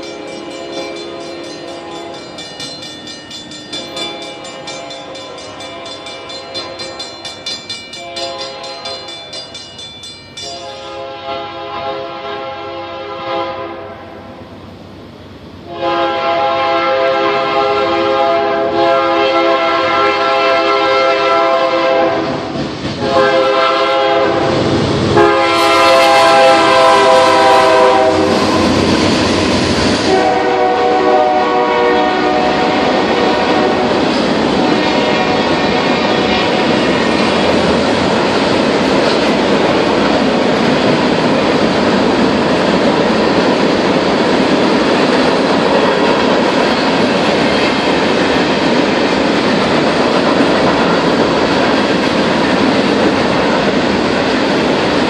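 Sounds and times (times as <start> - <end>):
locomotive engine: 0.0 - 11.0
train wheel noise: 0.0 - 55.0
locomotive air horn blasts: 8.0 - 9.1, 10.5 - 14.2, 15.7 - 22.4, 23.0 - 28.8, 30.0 - 34.0, 34.6 - 36.4.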